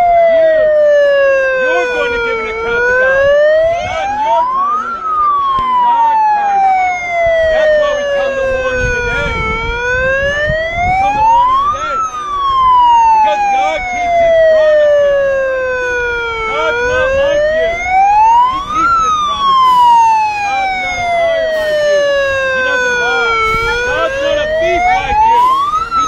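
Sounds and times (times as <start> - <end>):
siren wailing: 0.0 - 26.0.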